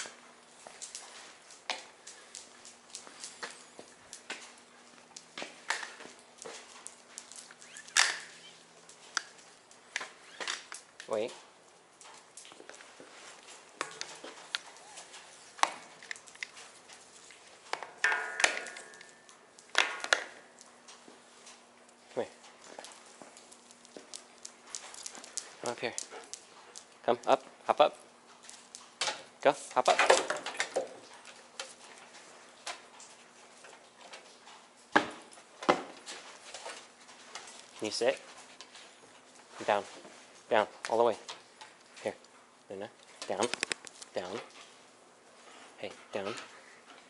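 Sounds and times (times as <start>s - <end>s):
footsteps on concrete: 0.0s - 10.8s, 11.4s - 27.0s
dog claws clicking on wood: 0.0s - 11.3s, 12.0s - 27.1s, 43.0s - 44.7s
clattering with ring: 17.9s - 19.4s.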